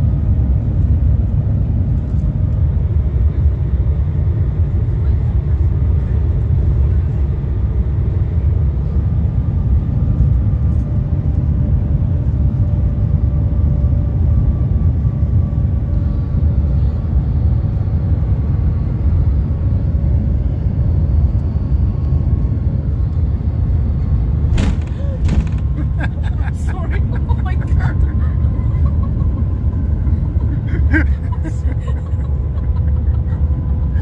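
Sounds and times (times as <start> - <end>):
train cabin low rumble: 0.0 - 34.0.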